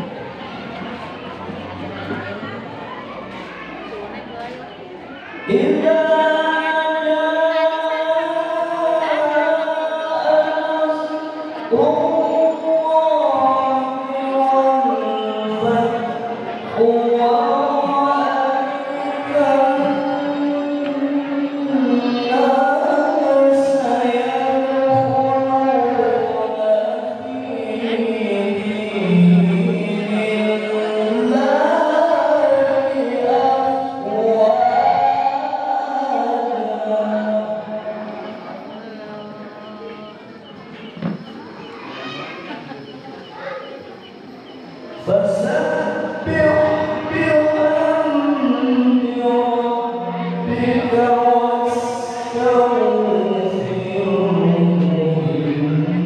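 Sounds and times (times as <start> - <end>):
man reciting melodically over loudspeakers: 0.0 - 56.0.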